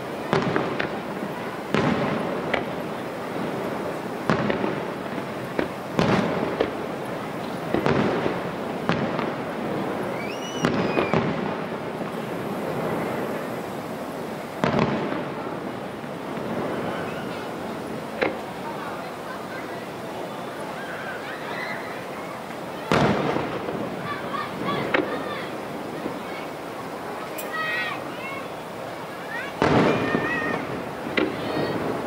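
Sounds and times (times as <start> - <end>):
firework shells booming: 0.0 - 19.0, 22.8 - 26.3, 29.6 - 32.0.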